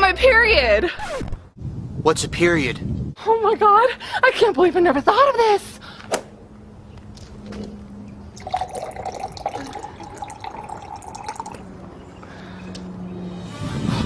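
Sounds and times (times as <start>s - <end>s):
liquid pouring into a glass: 8.3s - 11.8s.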